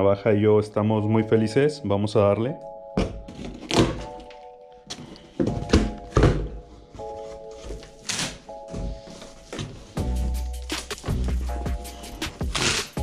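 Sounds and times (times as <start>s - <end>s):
background music with held chords: 0.0s - 13.0s
cardboard box thunks and knocks: 5.4s - 6.6s.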